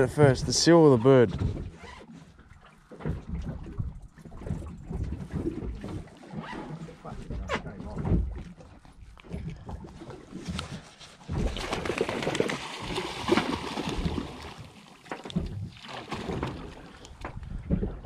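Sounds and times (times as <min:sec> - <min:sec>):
bird splashing and flapping wings: 0:10.3 - 0:16.9.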